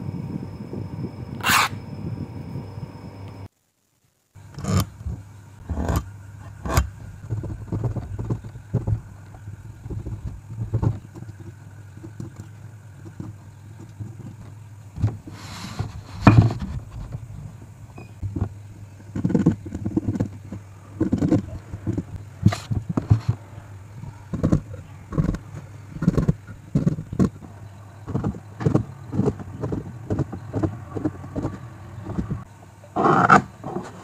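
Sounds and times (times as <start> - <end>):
low hum: 0.0 - 32.9
metal square set down: 1.4 - 1.8, 15.4 - 16.7.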